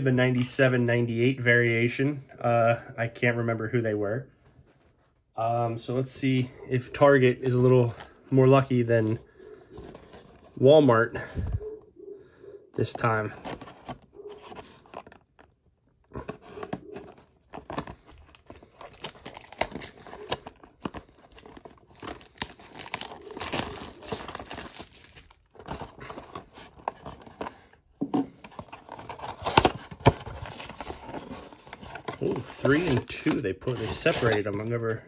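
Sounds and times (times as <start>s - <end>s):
plastic wrap tearing and crinkling: 16.1s - 26.8s, 28.8s - 34.6s.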